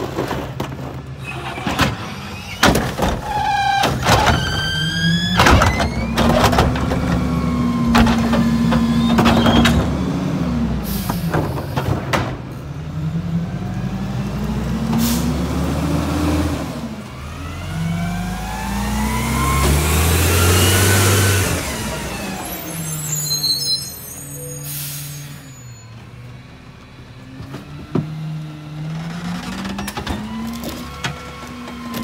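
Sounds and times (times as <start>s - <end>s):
garbage truck engine revving: 0.4s - 23.5s
air brake hiss: 10.8s - 11.3s, 15.0s - 15.4s, 24.6s - 25.4s.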